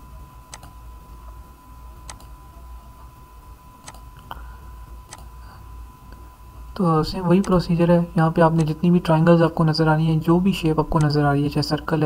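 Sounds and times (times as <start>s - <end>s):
faint electrical hum and whine: 0.0s - 12.0s
computer mouse clicks: 0.5s - 0.8s, 2.0s - 2.4s, 3.8s - 4.3s, 5.1s - 5.3s, 8.6s - 8.8s, 11.0s - 11.2s.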